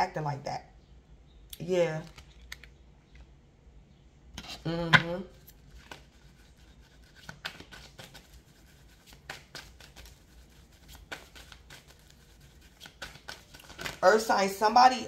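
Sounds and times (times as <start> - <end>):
cards clicking and rustling: 5.6 - 14.0.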